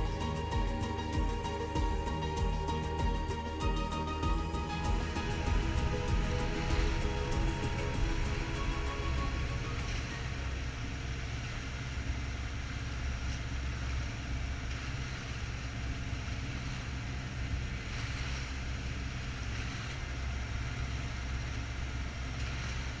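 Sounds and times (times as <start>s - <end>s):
wind and water rushing: 0.0s - 12.3s
boat engine running: 0.0s - 23.0s.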